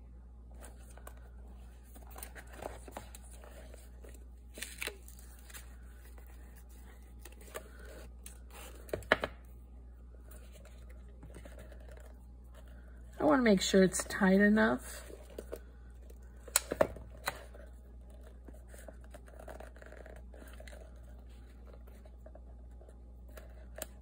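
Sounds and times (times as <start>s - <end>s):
paper notepad rustling: 0.6s - 9.3s, 10.2s - 12.8s, 17.3s - 24.0s.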